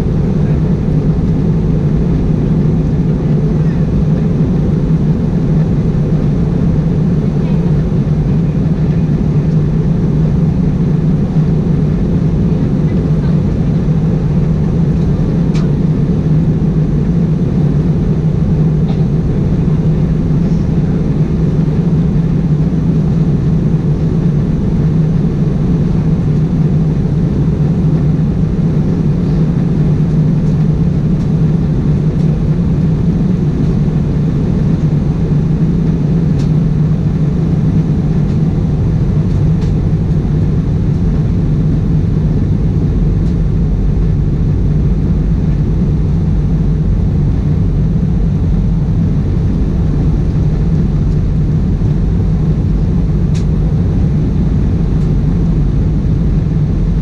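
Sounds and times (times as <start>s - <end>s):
aircraft cabin engine drone: 0.0s - 57.0s.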